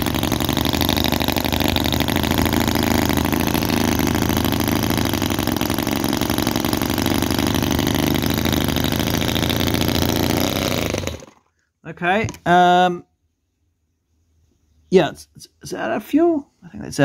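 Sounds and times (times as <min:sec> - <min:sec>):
model gasoline engine running: 0:00.0 - 0:11.5.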